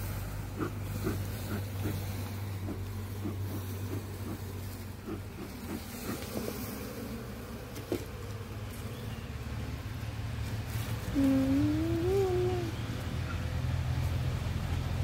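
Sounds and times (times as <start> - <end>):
honeybees humming: 0.0 - 15.0.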